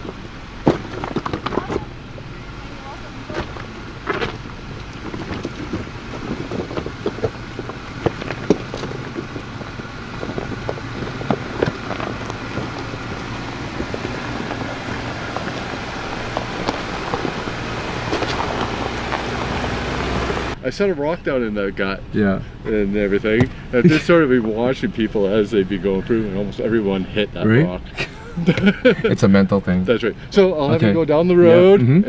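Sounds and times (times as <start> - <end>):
tyres crunching on rock: 0.0 - 20.6
off-road vehicle engine running: 0.0 - 32.0.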